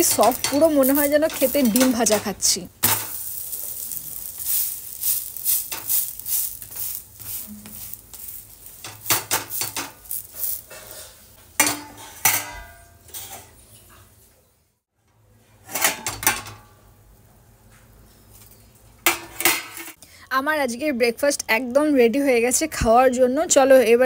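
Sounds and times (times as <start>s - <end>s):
metal spatula scraping on griddle: 0.0s - 13.4s
steel lid clinking: 0.0s - 13.5s.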